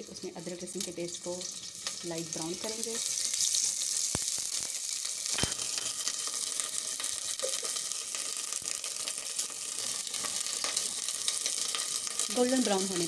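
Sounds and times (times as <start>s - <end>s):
paste sizzling in hot oil: 0.0s - 13.0s.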